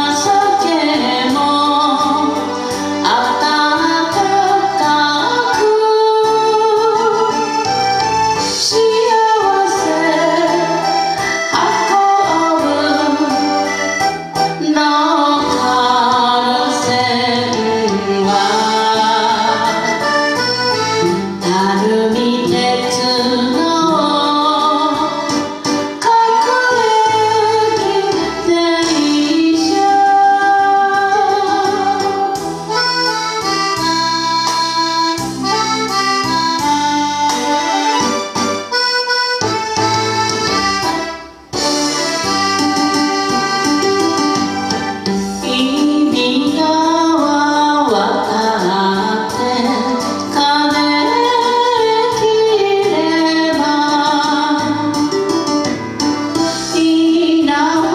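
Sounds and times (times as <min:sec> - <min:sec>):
woman singing: 0:00.0 - 0:07.6, 0:08.5 - 0:20.3, 0:21.0 - 0:32.5, 0:45.1 - 0:55.2, 0:56.6 - 0:57.9
accordion melody: 0:00.0 - 0:29.6, 0:30.6 - 0:46.5, 0:54.6 - 0:57.0
backing band: 0:00.0 - 0:47.3.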